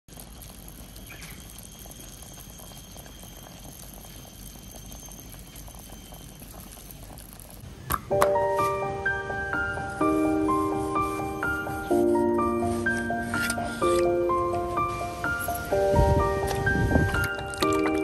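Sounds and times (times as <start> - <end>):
soup bubbling in a pot: 0.1 - 7.9
music: 8.0 - 18.0.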